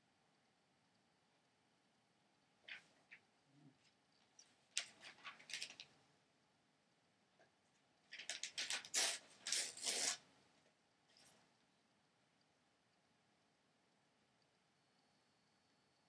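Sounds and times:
rustling handling noises: 0:03.8 - 0:05.9, 0:08.1 - 0:10.2.

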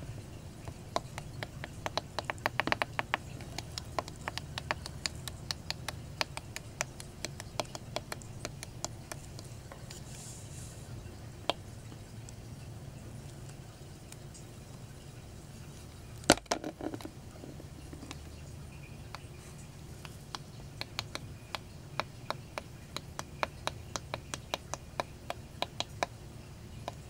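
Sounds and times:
low steady hum: 0:00.0 - 0:27.0
light irregular clicks and taps: 0:00.6 - 0:10.2, 0:15.9 - 0:27.0.

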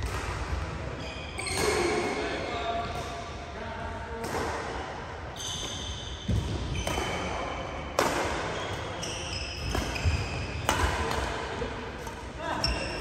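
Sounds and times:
shoes squeaking on court floor: 0:01.0 - 0:02.3, 0:05.3 - 0:07.2, 0:08.4 - 0:10.8, 0:12.5 - 0:13.0
rackets striking shuttlecock: 0:09.6 - 0:13.0.

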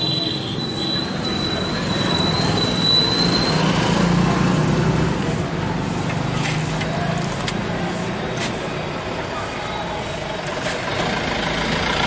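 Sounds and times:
street traffic: 0:00.0 - 0:12.0
vehicle engine humming: 0:00.0 - 0:12.0.

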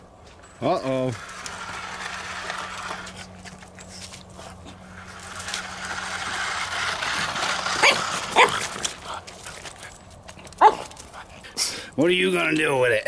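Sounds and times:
toy car motor whirring: 0:00.4 - 0:12.4
puppy barking: 0:07.8 - 0:08.6, 0:10.6 - 0:10.9.

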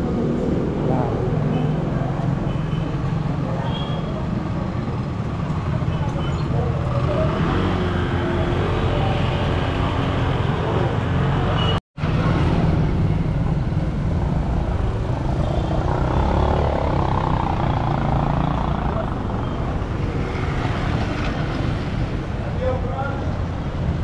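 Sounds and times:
motorcycles going by: 0:00.0 - 0:24.0
road noise: 0:00.0 - 0:24.0.

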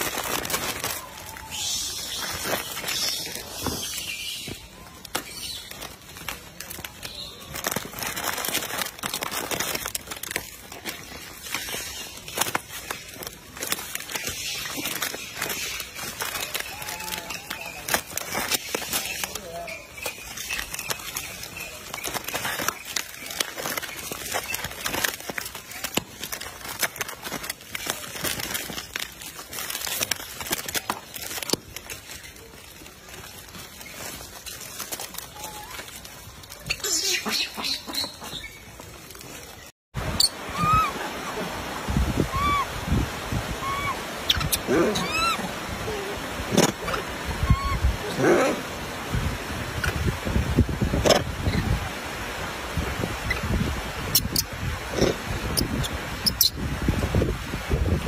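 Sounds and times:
plastic wrappers crinkling: 0:00.0 - 0:39.7.

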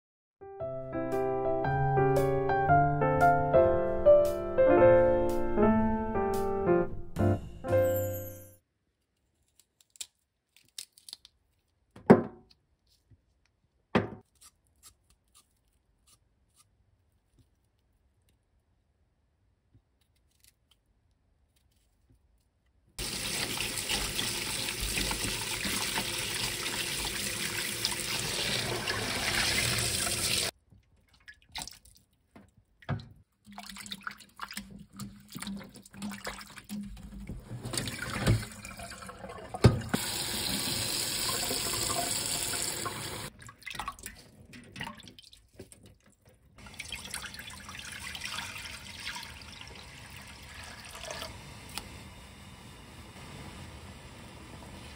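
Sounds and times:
water pouring into a pot: 0:23.0 - 0:30.5, 0:37.6 - 0:45.4, 0:46.6 - 0:51.4
splashing in a metal bowl: 0:23.0 - 0:40.0, 0:43.3 - 0:51.3
tap running into metal sink: 0:39.5 - 0:40.7.

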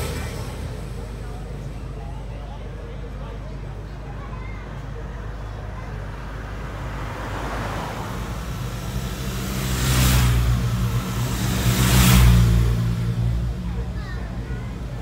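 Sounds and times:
motorcycles passing by: 0:00.0 - 0:02.5, 0:05.4 - 0:15.0
car passing by: 0:06.0 - 0:15.0.

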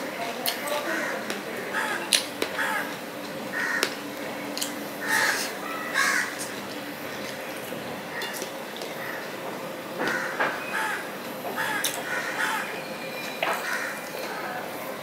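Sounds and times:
crows cawing: 0:00.8 - 0:04.0, 0:05.0 - 0:06.5, 0:09.0 - 0:09.4, 0:10.0 - 0:14.5.

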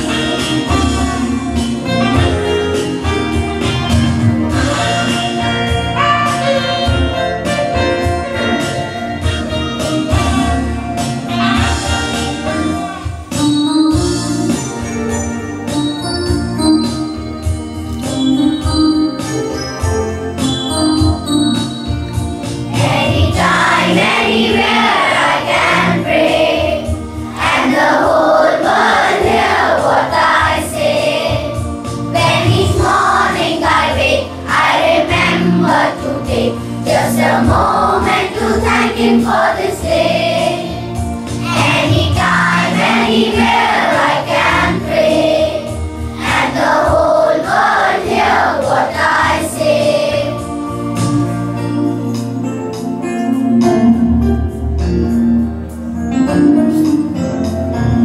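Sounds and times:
sustained instrumental accompaniment: 0:00.0 - 0:58.0
children's choir singing: 0:20.7 - 0:52.4.

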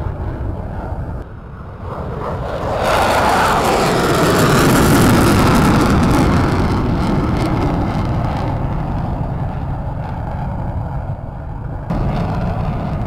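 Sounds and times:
military jet engines passing: 0:00.0 - 0:13.0.

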